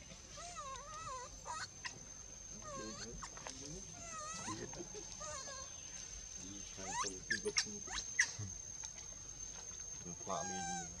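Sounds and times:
young monkey squeaky calls: 0.3s - 2.0s, 2.6s - 5.8s, 6.7s - 8.6s, 10.2s - 11.0s.

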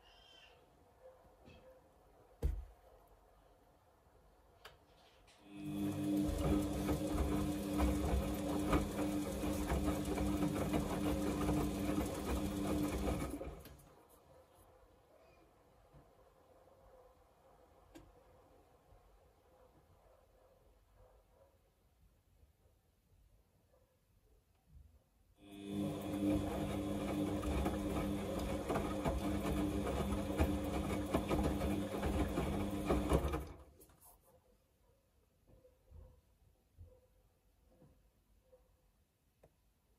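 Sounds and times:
washing machine tumbling: 5.5s - 13.7s, 25.6s - 33.7s.

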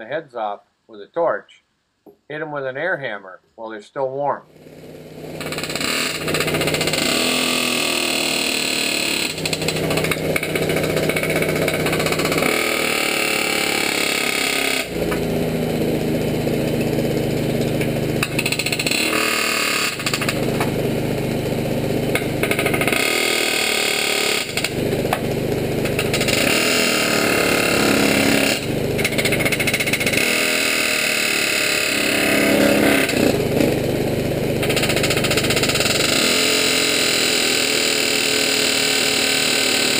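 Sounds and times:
engine running steadily: 4.6s - 39.9s
air hammer chattering on steel: 5.4s - 15.0s, 17.6s - 20.6s, 22.1s - 24.8s, 25.8s - 32.2s, 34.6s - 37.0s.

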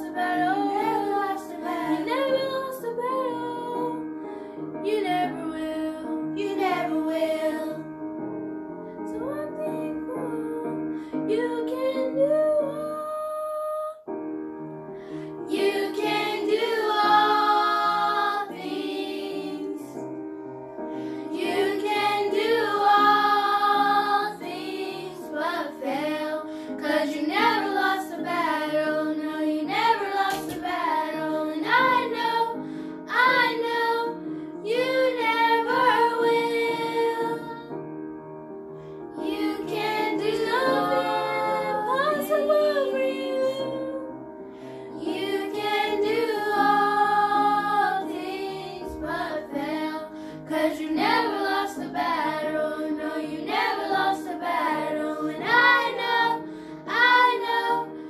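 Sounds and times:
girls singing a hymn: 0.0s - 4.0s, 4.8s - 7.9s, 15.4s - 20.2s, 21.0s - 37.8s, 39.2s - 44.1s, 44.9s - 58.0s
instrumental backing music: 14.1s - 58.0s.

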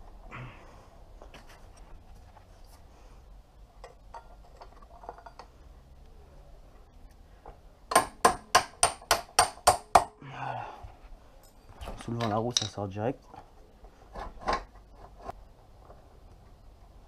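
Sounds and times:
tools clinking: 3.8s - 5.6s, 11.4s - 12.9s
hammer tapping metal: 7.9s - 10.2s.

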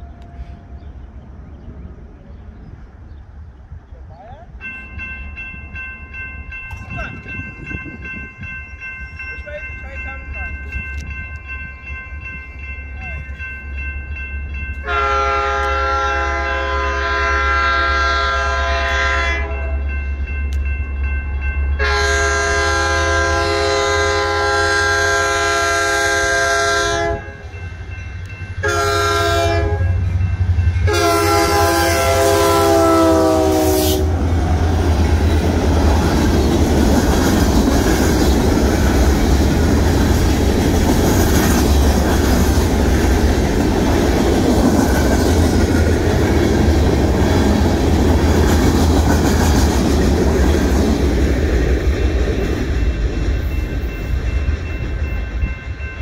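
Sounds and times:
locomotive engines rumbling: 0.0s - 56.0s
train air horn blasts: 14.8s - 19.8s, 21.8s - 27.5s, 28.6s - 30.1s, 30.8s - 34.2s.

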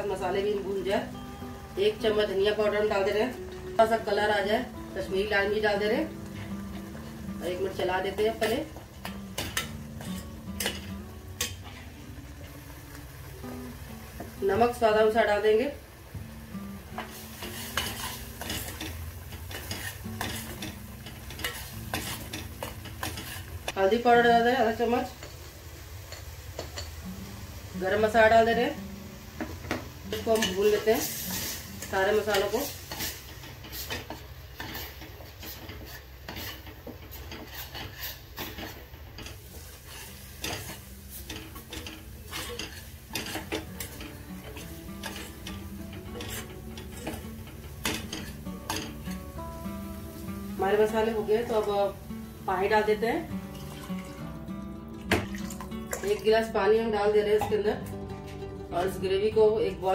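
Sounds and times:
paste sizzling in oil: 0.0s - 56.6s
spoon scraping a steel pot: 19.5s - 23.5s, 32.3s - 49.0s.

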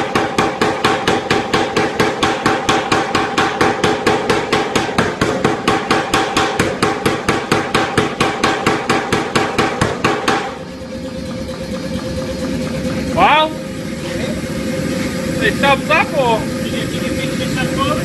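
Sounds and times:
power hammer striking hot steel: 0.0s - 13.6s.

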